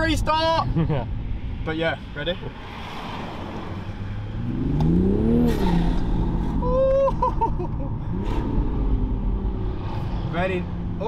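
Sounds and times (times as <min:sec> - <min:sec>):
car engine accelerating: 0:02.7 - 0:11.0.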